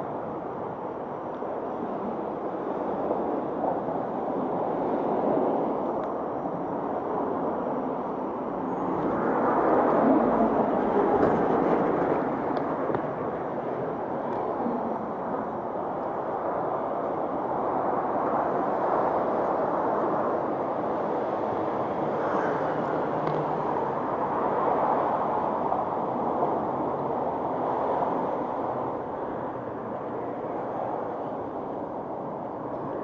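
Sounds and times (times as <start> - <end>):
passing car traffic: 20.2 - 33.0.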